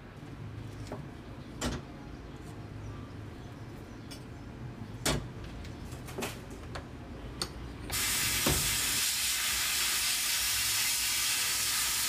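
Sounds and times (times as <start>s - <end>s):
sandblaster hissing: 7.9s - 12.0s.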